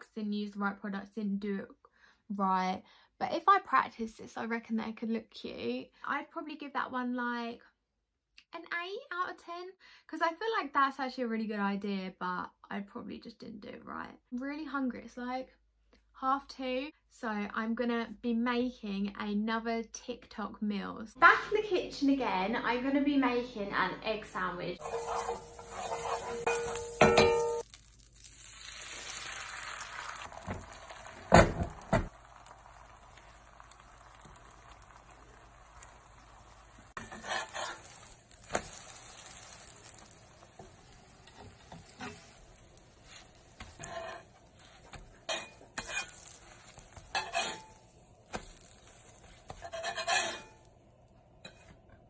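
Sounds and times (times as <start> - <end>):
butter and egg sizzling in skillet: 24.8 - 51.9.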